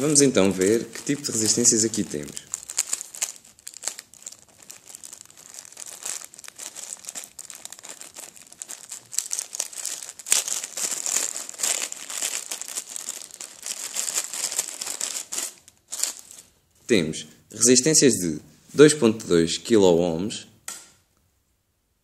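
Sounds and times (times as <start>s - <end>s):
plastic bag crinkling: 0.0s - 16.6s.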